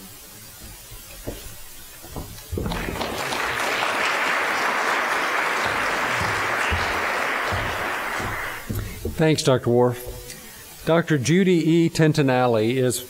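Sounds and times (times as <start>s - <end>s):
audience applauding: 2.5s - 8.9s.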